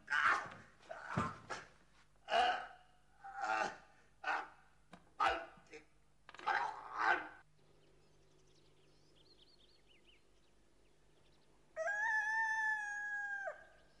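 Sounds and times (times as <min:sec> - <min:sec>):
rooster crowing: 0:11.8 - 0:13.8.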